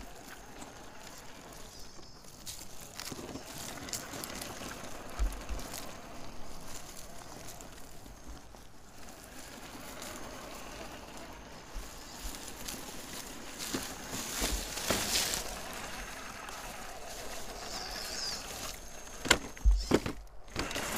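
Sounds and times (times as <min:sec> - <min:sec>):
toy truck tyres crunching on gravel: 0:00.0 - 0:20.9.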